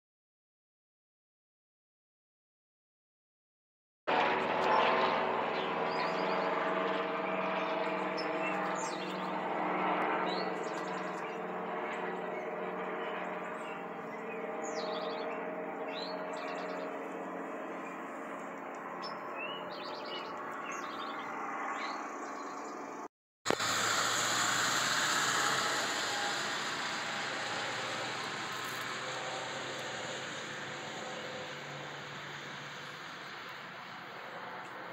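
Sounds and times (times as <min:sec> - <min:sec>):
aircraft engine drone: 0:04.1 - 0:34.9
songbirds chirping: 0:17.8 - 0:23.0.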